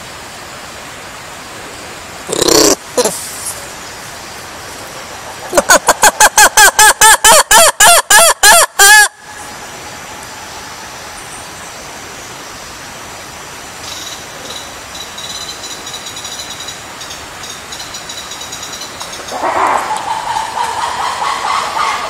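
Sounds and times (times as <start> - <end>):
background hiss: 0.0 - 22.0
lemur harsh call: 2.3 - 3.5, 19.3 - 22.0
faint high chirping: 13.8 - 19.4.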